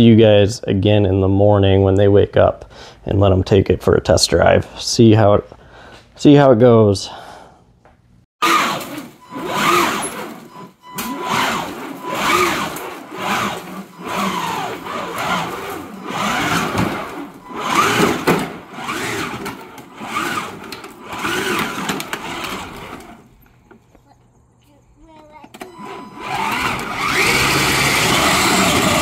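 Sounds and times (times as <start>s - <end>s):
electric motors whining: 8.4s - 23.4s, 25.5s - 29.0s.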